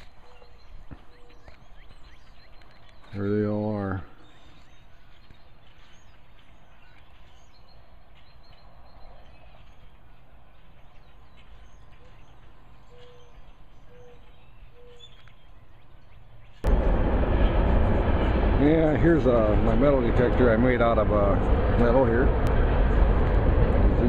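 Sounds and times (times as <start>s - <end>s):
faint bird chirps: 0.0s - 16.6s
low rumble: 16.6s - 24.0s.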